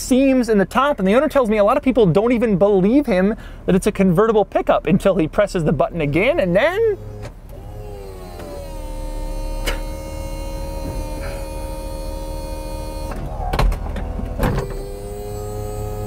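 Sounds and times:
electric motor whining: 0:06.8 - 0:16.0.

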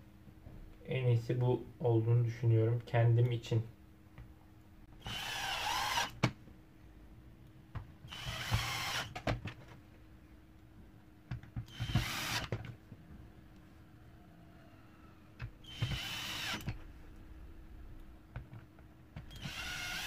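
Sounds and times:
electric screwdriver driving screws: 0:05.0 - 0:06.3, 0:08.1 - 0:09.2, 0:11.7 - 0:12.6, 0:15.6 - 0:16.8, 0:19.3 - 0:20.0.

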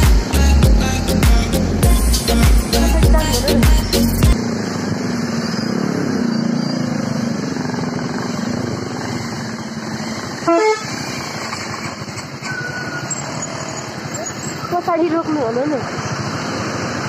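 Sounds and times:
motorcycle engines running: 0:00.0 - 0:17.0
vehicle horn beep: 0:10.4 - 0:11.1.

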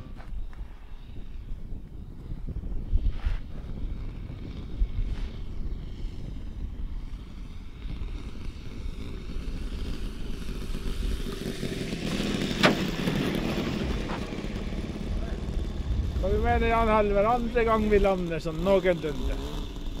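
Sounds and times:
model airplane motor: 0:00.0 - 0:20.0
wind on microphone: 0:00.0 - 0:20.0
wheels rolling on gravel: 0:07.7 - 0:20.0.

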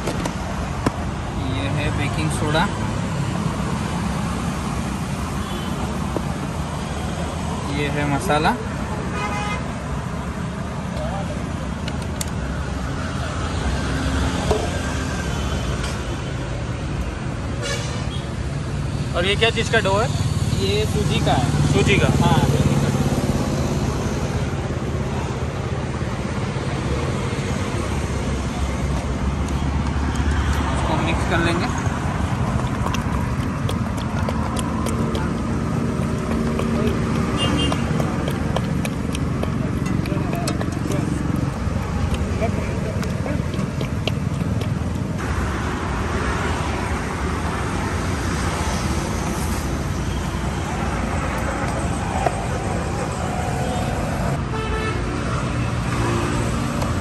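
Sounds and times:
roadside traffic noise: 0:00.0 - 0:57.0
vehicle engine running: 0:31.7 - 0:46.1.

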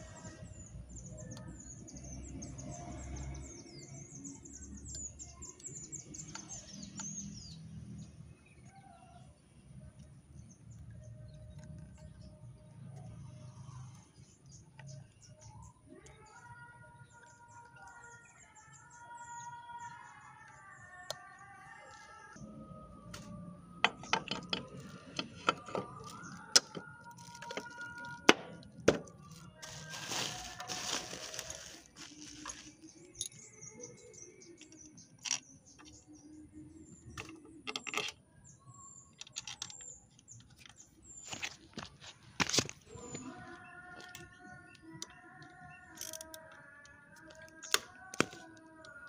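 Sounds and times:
metallic clicks and knocks: 0:23.8 - 0:29.1.

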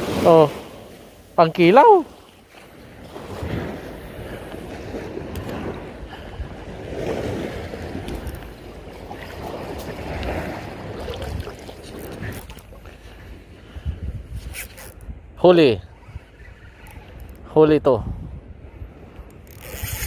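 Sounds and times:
waves washing at shore: 0:00.0 - 0:15.0
wind buffeting microphone: 0:02.1 - 0:20.0.

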